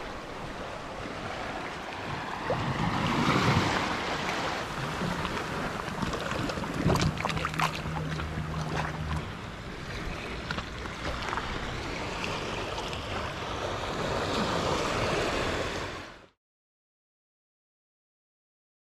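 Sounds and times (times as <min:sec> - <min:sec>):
wind buffeting microphone: 0:00.0 - 0:15.6
water lapping over rocks: 0:00.0 - 0:16.0
low steady hum: 0:04.7 - 0:12.0.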